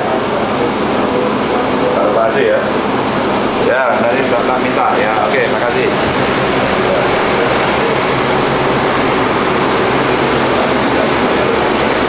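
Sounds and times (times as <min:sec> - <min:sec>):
engine drone: 0:00.0 - 0:12.0
low hum: 0:00.0 - 0:12.0.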